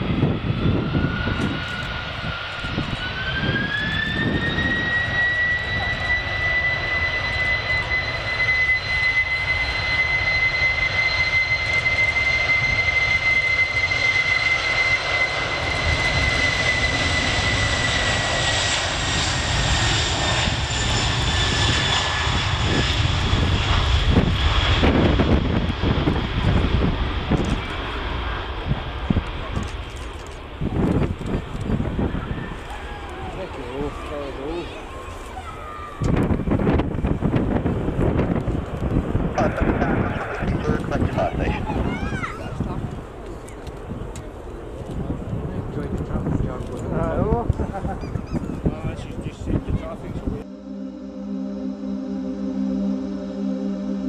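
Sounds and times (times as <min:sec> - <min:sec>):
deep engine rumble: 0:00.0 - 0:34.0, 0:36.1 - 0:42.0, 0:42.6 - 0:54.0
jet engines whining: 0:00.0 - 0:54.0.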